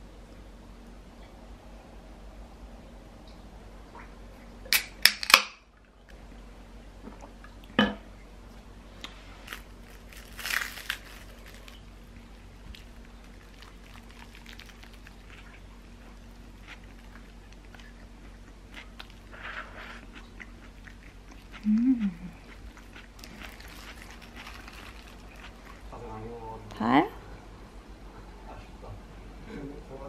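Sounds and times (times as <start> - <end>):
drink can popping open: 4.7 - 5.6
quiet chewing: 8.5 - 26.0
paper wrap crinkling: 9.4 - 15.6, 23.2 - 25.9
crunchy bite into sandwich: 9.5 - 11.8, 12.7 - 18.0, 18.7 - 25.9.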